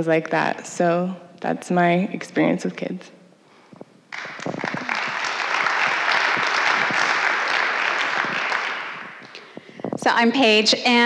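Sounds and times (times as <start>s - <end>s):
audience applauding: 4.1s - 9.4s.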